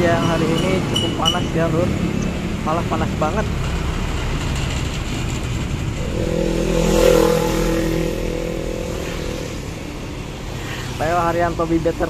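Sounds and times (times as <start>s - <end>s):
motorcycle engine passing: 6.0s - 10.4s
truck passing: 6.0s - 10.7s.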